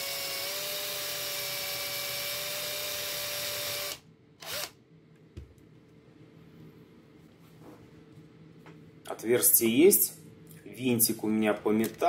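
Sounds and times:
cordless drill whining: 0.0 - 4.7.

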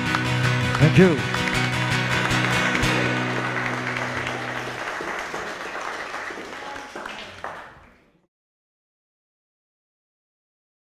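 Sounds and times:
acoustic guitar chord ringing: 0.0 - 4.8
audience applause: 0.0 - 8.3.

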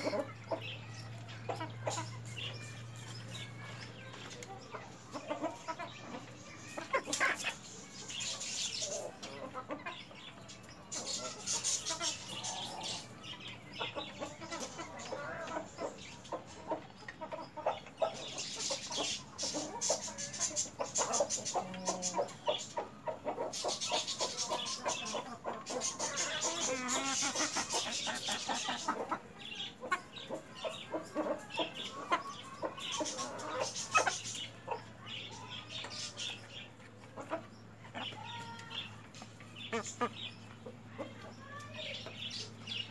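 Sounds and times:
chickens clucking: 0.0 - 42.9.

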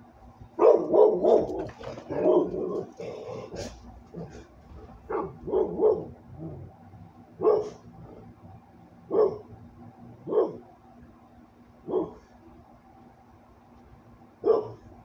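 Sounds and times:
dog barking: 0.6 - 2.9, 5.0 - 6.6, 7.4 - 7.8, 9.1 - 9.5, 10.2 - 10.6, 11.8 - 12.3, 14.4 - 14.9.

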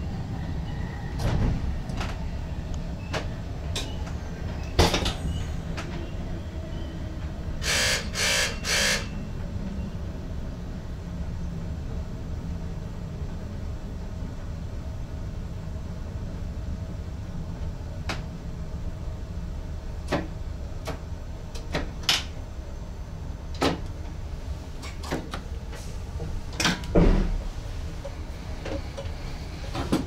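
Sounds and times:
train cab rumble: 0.0 - 30.0.

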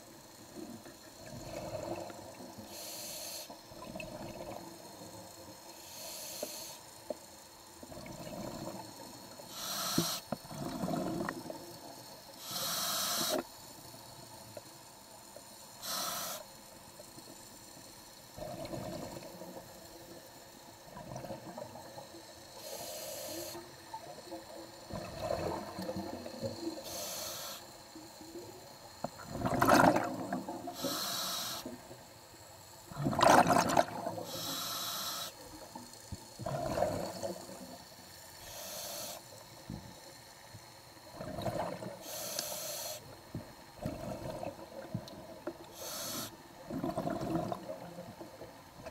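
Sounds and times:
regulator hiss on inhale: 0.0 - 29.2, 30.4 - 32.9, 34.1 - 44.9, 45.5 - 46.7
exhaled air bubbling: 1.2 - 2.6, 3.7 - 5.2, 7.8 - 9.6, 10.4 - 11.9, 18.4 - 19.9, 20.8 - 22.3, 23.6 - 26.8, 28.9 - 30.8, 32.9 - 34.5, 36.1 - 38.0, 41.0 - 42.2, 43.3 - 48.9.

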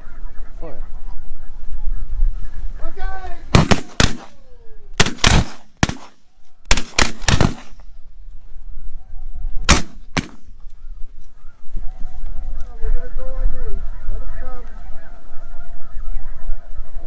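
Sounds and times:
shotgun blasts: 3.5 - 4.4, 5.0 - 7.9, 9.7 - 10.5.

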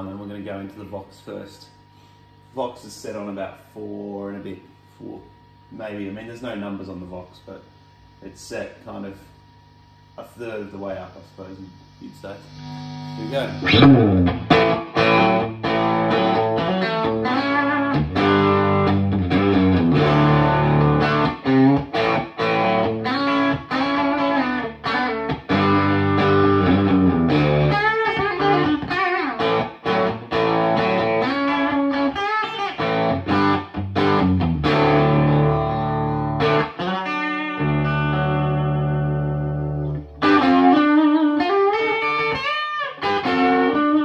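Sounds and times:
overdriven electric guitar: 11.9 - 44.0.

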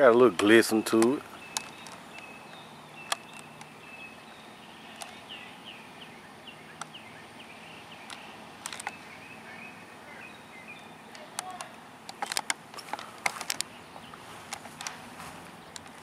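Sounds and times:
bird chirping: 0.0 - 16.0
sharp clicks: 0.3 - 3.7, 4.9 - 5.2, 8.0 - 9.0, 11.1 - 13.7.

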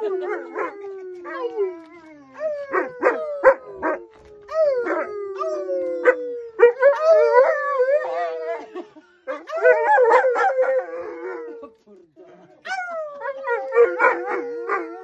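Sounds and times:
dog howling: 0.0 - 8.7, 9.4 - 11.5, 12.7 - 15.0
man howling: 0.0 - 8.8.

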